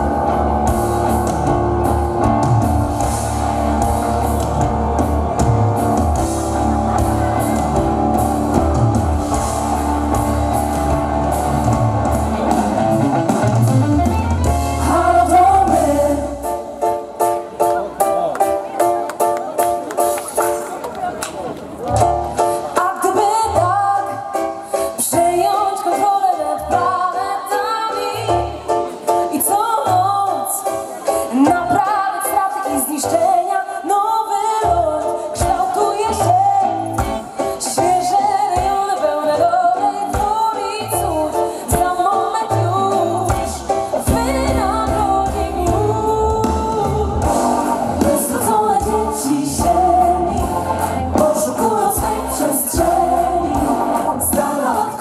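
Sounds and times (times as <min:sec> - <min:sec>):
bass: 0:00.0 - 0:16.6, 0:34.6 - 0:38.3, 0:39.3 - 0:55.0
drums: 0:00.0 - 0:55.0
vocal group singing: 0:14.8 - 0:16.6, 0:41.4 - 0:55.0.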